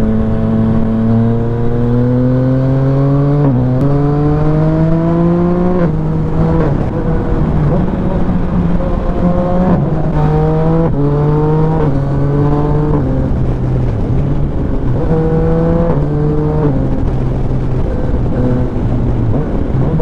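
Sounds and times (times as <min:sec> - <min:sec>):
motorcycle engine accelerating: 0:00.0 - 0:20.0
wind and road noise: 0:00.0 - 0:20.0.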